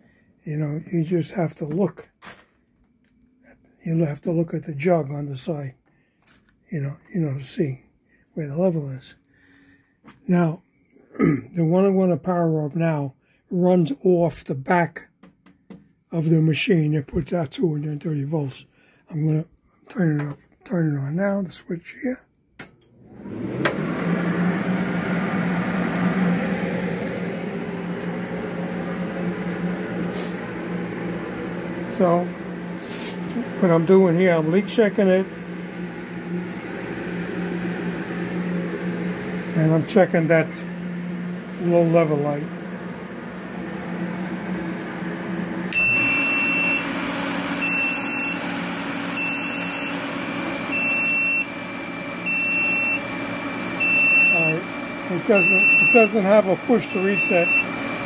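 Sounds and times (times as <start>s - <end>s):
water cooler pump and fan humming: 22.6s - 58.0s
high electronic alarm beeps: 50.8s - 51.5s, 52.3s - 53.0s, 53.8s - 54.6s, 55.4s - 56.1s.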